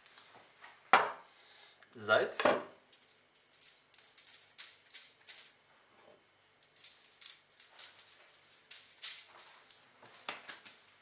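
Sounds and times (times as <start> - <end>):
salt pattering on foil: 2.9 - 5.6, 6.6 - 9.8.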